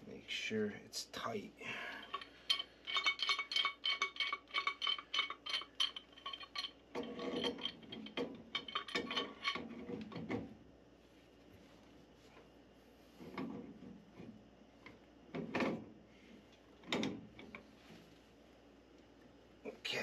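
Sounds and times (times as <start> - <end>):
pipe wrench clinking on iron pipe: 2.0 - 9.7.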